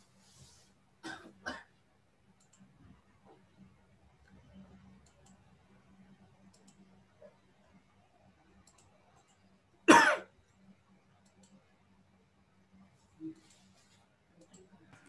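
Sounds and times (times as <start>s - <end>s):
faint steady hum: 0.0s - 15.0s
person coughing: 1.0s - 1.7s, 9.9s - 10.3s.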